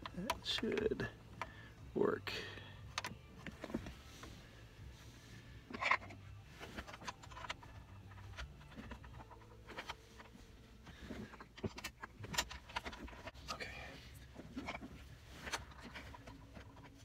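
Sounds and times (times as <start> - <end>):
plastic trim clicking and scraping: 5.7 - 13.6.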